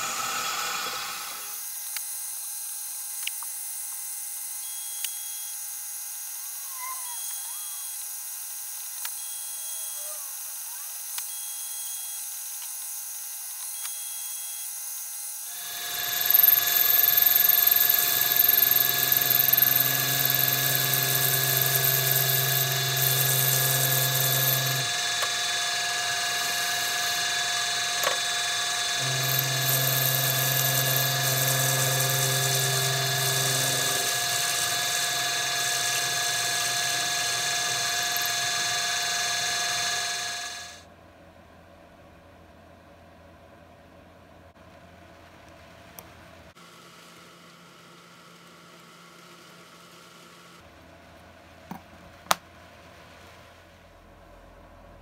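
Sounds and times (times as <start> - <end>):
lathe motor whine: 7.2 - 40.8.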